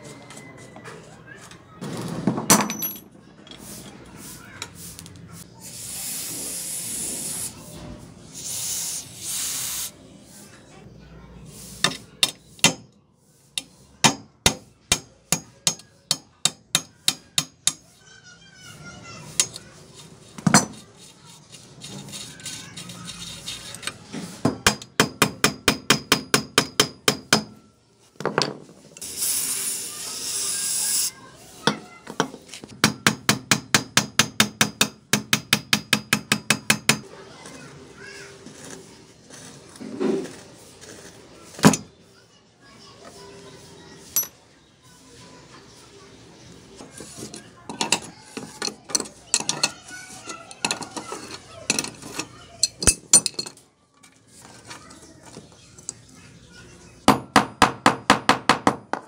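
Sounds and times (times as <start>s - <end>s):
spray can hissing: 5.6s - 7.7s, 8.3s - 10.0s, 29.0s - 31.1s
hammer tapping metal: 13.6s - 17.8s, 24.5s - 27.6s, 31.7s - 37.0s.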